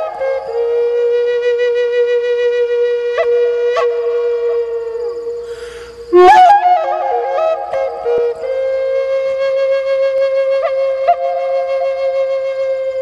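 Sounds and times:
solo flute: 0:00.0 - 0:13.0
breath: 0:05.4 - 0:06.1.

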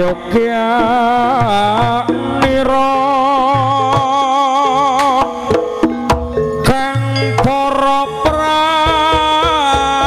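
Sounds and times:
hand drum strokes: 0:00.2 - 0:10.0
person singing long note: 0:01.7 - 0:05.2
metallophone tones: 0:05.7 - 0:08.5.

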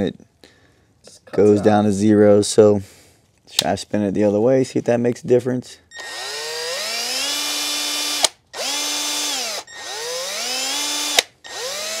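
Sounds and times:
cordless drill motor whine: 0:05.9 - 0:12.0
drill click: 0:05.9 - 0:12.0.

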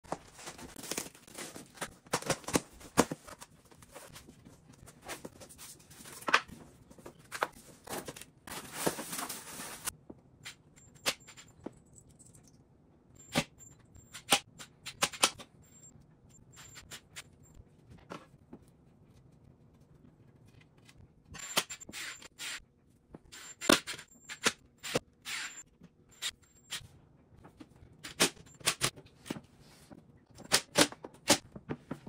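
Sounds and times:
packaging rustling: 0:00.0 - 0:04.1, 0:07.4 - 0:09.9
cardboard and foam packing handled: 0:00.1 - 0:09.9.

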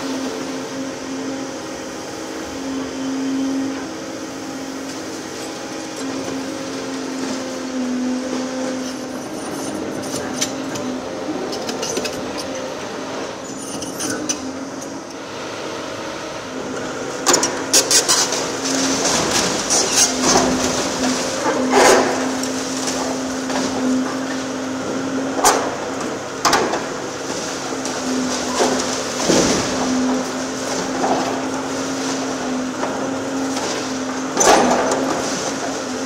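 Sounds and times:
excavator engine droning: 0:00.0 - 0:36.0
demolition jaws breaking concrete: 0:17.3 - 0:24.4, 0:25.2 - 0:36.0
falling masonry clattering: 0:17.3 - 0:36.0.

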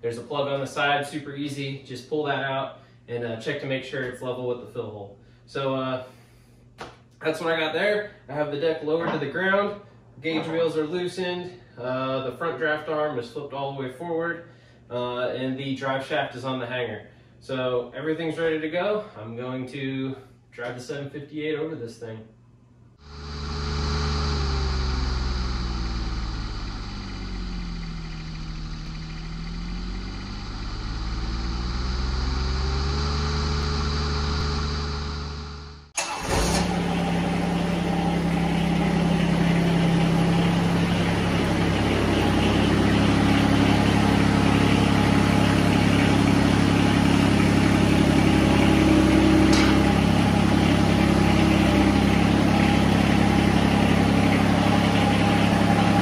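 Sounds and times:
droning hum changing pitch: 0:23.0 - 0:36.0, 0:36.7 - 0:50.6
tractor diesel engine running: 0:23.0 - 0:56.0.

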